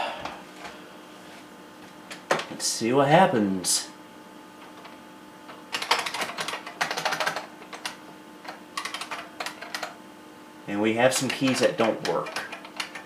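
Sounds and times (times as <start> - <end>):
keyboard keystrokes clacking: 5.7 - 10.0, 11.2 - 13.0.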